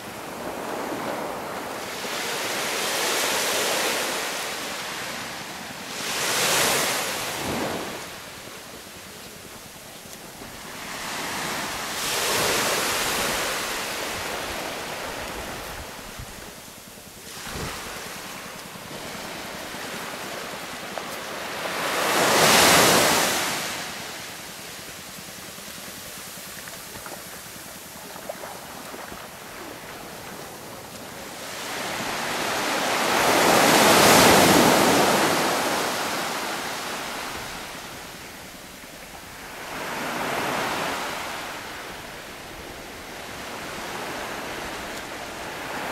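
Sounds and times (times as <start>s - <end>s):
waves breaking on beach: 0.0s - 45.9s.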